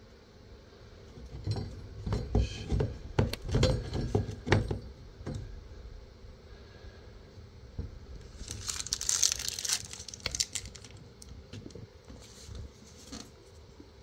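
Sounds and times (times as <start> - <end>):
thin plastic crinkling: 8.2 - 11.3.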